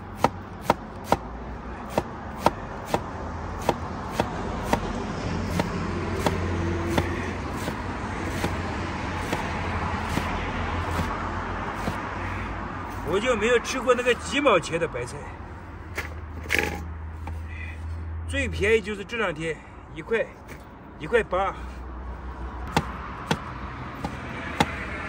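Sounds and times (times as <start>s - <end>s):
vehicle engine rumble: 0.0s - 25.0s
knife chopping on cutting board: 1.9s - 4.9s, 5.5s - 8.6s, 9.2s - 9.5s, 10.1s - 11.2s, 24.0s - 24.8s.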